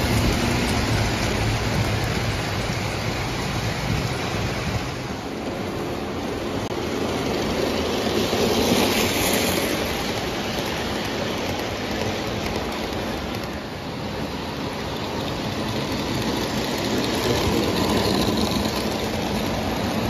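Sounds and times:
toy train wheels rumbling on track: 6.9 - 20.0.

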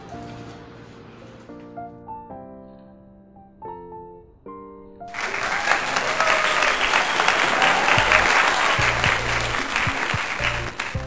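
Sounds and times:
crowd applauding: 5.1 - 11.0
background music with bass: 8.0 - 11.0.

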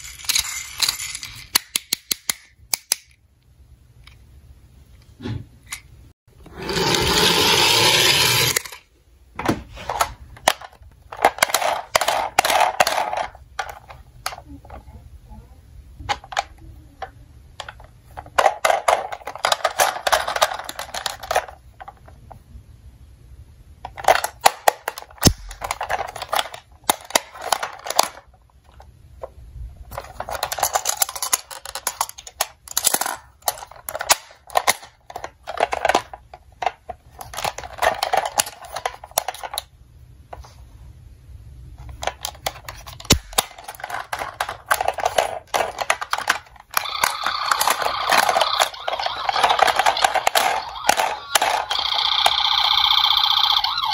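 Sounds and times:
plastic toy clicking and rattling: 0.0 - 3.2, 9.9 - 14.8, 17.6 - 22.0, 23.8 - 28.9, 29.9 - 39.7, 41.9 - 53.9.

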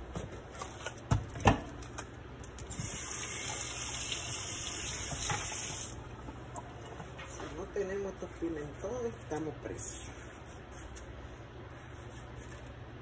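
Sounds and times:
kitchen tap running: 2.6 - 6.0.

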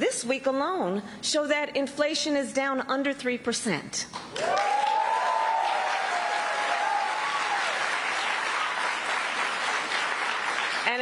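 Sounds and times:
crowd cheering: 4.3 - 10.8
crowd applauding: 4.3 - 11.0.

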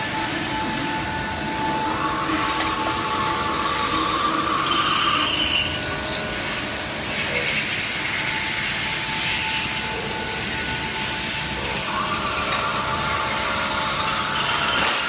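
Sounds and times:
machining machine running: 0.0 - 15.0.

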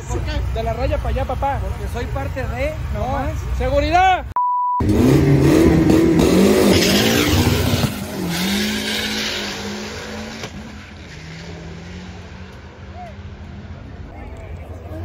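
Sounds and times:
short electronic beep: 4.4 - 4.9
drag racing engine revving: 4.8 - 13.9.

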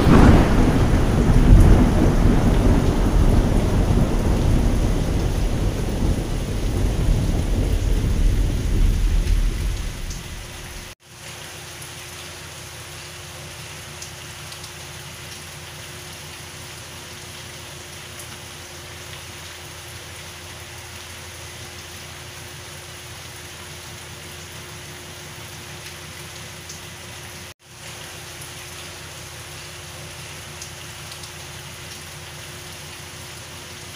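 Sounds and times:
thunder rumbling: 0.0 - 11.0
heavy rain: 0.0 - 33.9
rain on foliage: 0.0 - 33.9.

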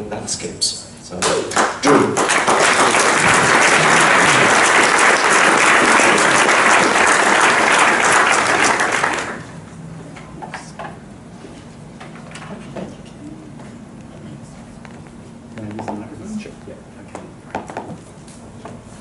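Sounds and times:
audience applauding: 1.2 - 9.6.

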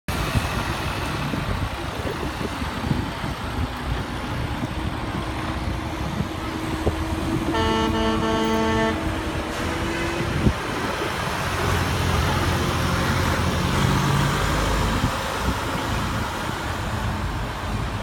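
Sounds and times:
truck engine driving past: 0.1 - 18.0
truck horn: 7.4 - 10.3.

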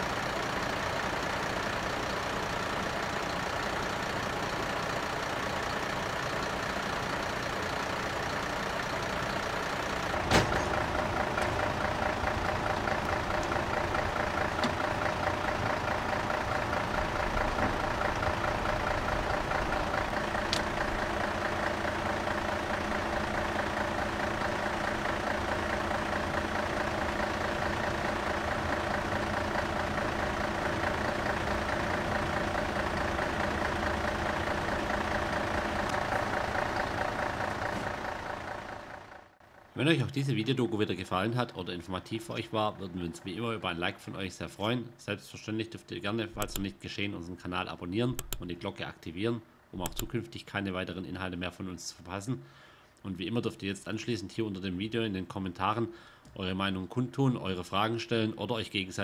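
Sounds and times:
truck engine idling: 0.0 - 43.9, 46.3 - 46.7.

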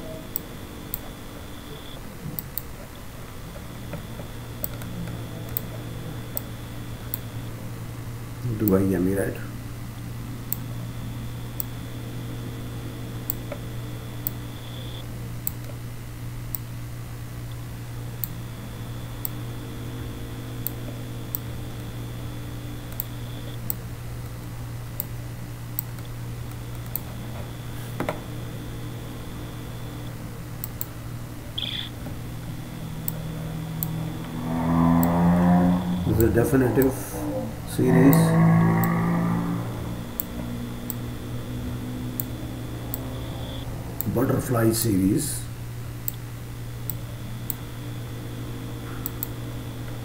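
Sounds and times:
steady low hum: 0.0 - 50.0
faint ticks: 33.8 - 36.0, 37.8 - 41.0
faint high tone: 34.1 - 40.1.

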